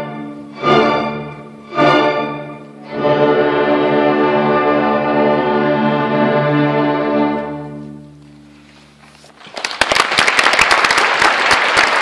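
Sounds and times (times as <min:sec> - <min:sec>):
audience applause: 0:09.4 - 0:12.0.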